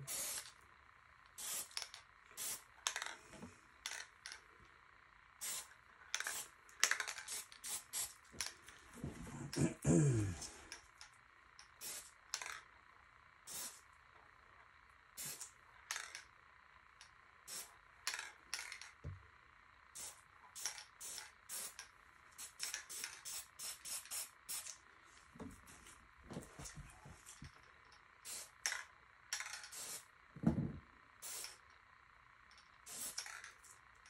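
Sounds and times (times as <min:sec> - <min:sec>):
spray-paint can hissing: 0:00.1 - 0:00.6, 0:01.4 - 0:02.7, 0:05.4 - 0:08.2, 0:11.8 - 0:12.5, 0:13.5 - 0:13.8, 0:15.2 - 0:16.1, 0:17.5 - 0:17.7, 0:19.9 - 0:24.8, 0:28.2 - 0:30.1, 0:31.2 - 0:31.6, 0:32.8 - 0:33.7.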